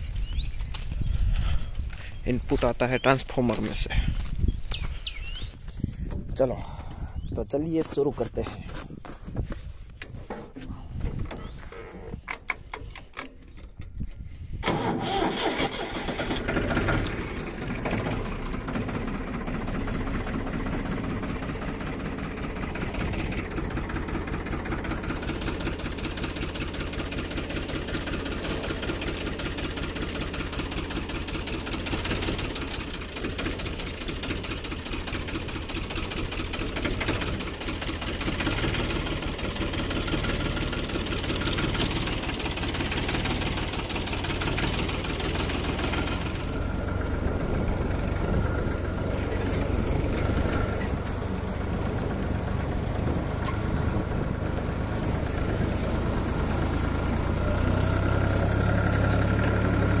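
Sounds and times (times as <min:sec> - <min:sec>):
diesel tractor engine running: 0:00.0 - 1:00.0
engine clicks: 0:09.9 - 0:55.8.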